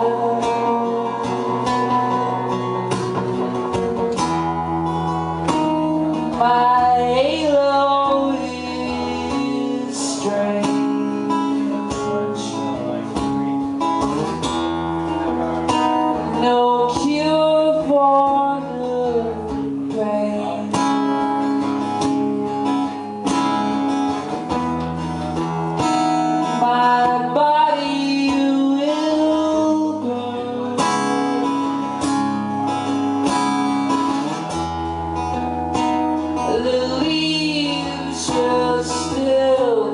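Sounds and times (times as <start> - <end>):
man singing wordless melody: 0.0 - 2.4, 6.4 - 13.1, 16.2 - 21.0, 26.5 - 31.6, 36.4 - 39.9
acoustic guitar: 0.0 - 39.9.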